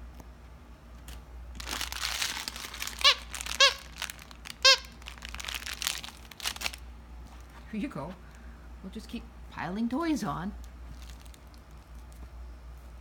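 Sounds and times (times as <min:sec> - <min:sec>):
plush toys crinkling and rustling: 0:01.0 - 0:07.8, 0:10.6 - 0:12.4
toy squeaker squeaks: 0:02.7 - 0:05.0.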